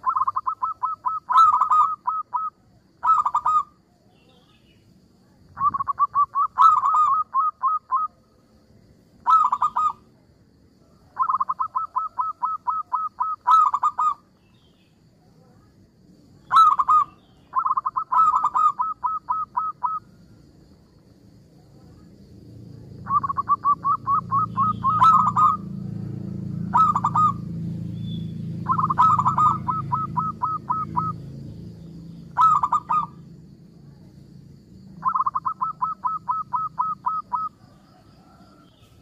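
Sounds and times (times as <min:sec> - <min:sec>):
dove cooing: 0:00.0 - 0:03.8, 0:05.6 - 0:08.2, 0:09.2 - 0:10.1, 0:11.1 - 0:14.2, 0:16.5 - 0:20.1, 0:23.0 - 0:25.7, 0:26.6 - 0:27.6, 0:28.6 - 0:31.3, 0:32.3 - 0:33.2, 0:35.0 - 0:38.8.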